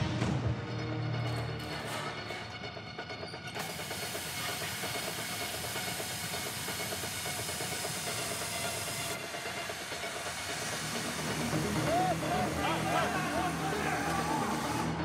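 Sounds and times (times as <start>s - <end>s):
pressurised gas hissing: 3.6s - 15.0s.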